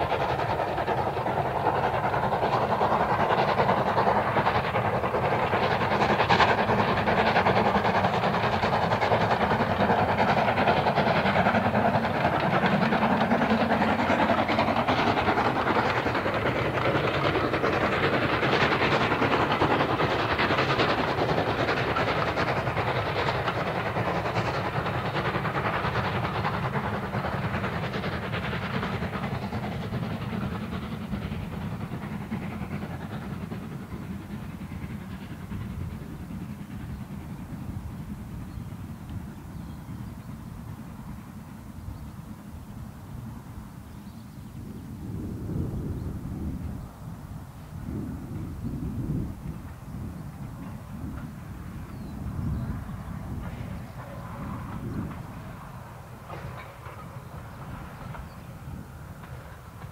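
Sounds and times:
steam locomotive working hard: 0.0s - 59.9s.

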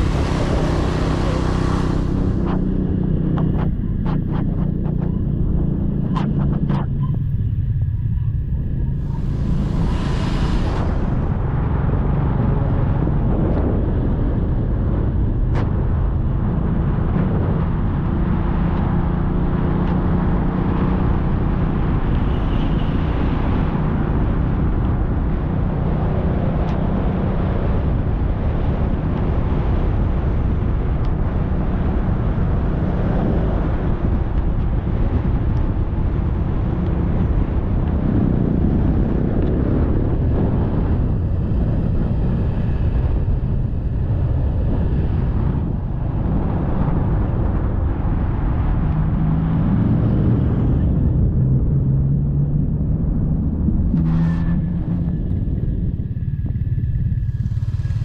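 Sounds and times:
motorcycle engine running: 0.0s - 9.8s, 31.4s - 58.0s
wind on microphone: 0.0s - 58.0s.

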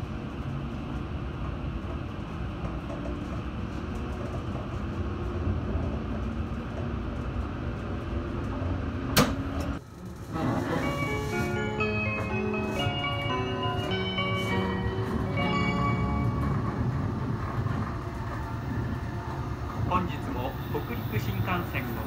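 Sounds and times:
train running rumble: 0.0s - 22.0s.

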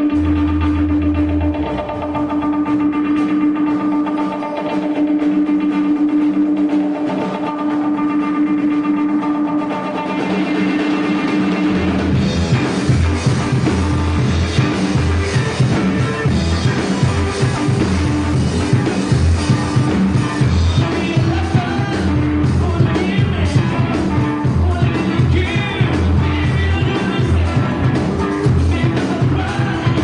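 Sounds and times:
rock band playing: 0.0s - 30.0s
man singing: 20.4s - 30.0s.

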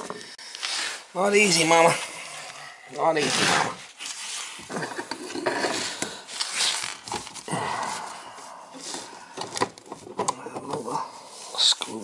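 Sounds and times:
rubbing and scraping: 0.6s - 8.0s
person breathing strained: 5.3s - 6.8s, 7.4s - 9.8s.

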